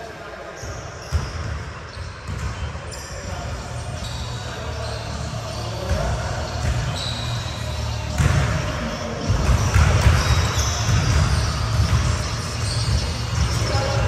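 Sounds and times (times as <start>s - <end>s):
basketballs bouncing on hardwood: 2.3s - 2.6s, 9.2s - 14.0s
short high squeaks: 6.8s - 7.6s.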